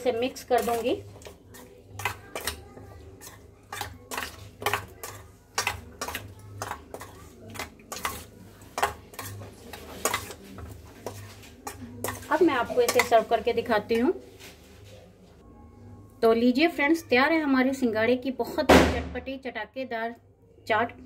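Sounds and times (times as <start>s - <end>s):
metal spoon scraping steel bowl: 0.0s - 14.0s.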